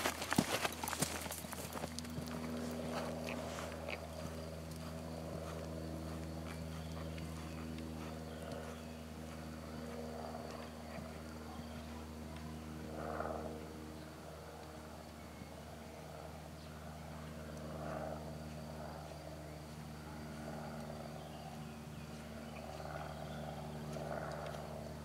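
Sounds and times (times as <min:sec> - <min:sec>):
hoofbeats on sand: 0:00.0 - 0:12.0, 0:17.9 - 0:25.0
steady low hum: 0:00.0 - 0:25.0.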